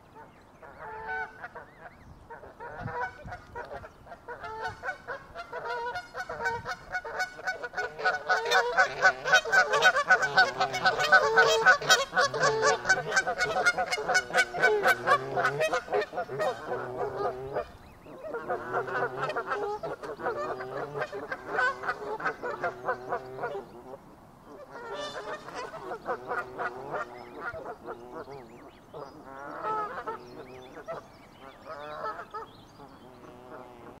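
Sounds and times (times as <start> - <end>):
geese honking: 0.6 - 23.7, 24.5 - 28.4.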